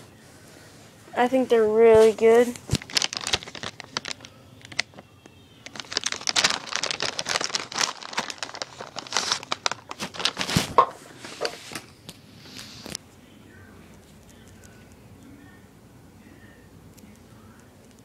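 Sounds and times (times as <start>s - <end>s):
plastic bag crinkling: 2.0s - 5.0s, 5.6s - 11.6s.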